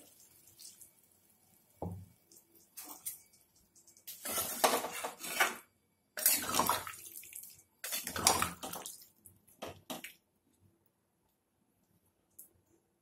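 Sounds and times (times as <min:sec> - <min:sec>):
water sloshing in a pan: 0:00.0 - 0:10.2
spatula scraping a steel pan: 0:04.1 - 0:05.6.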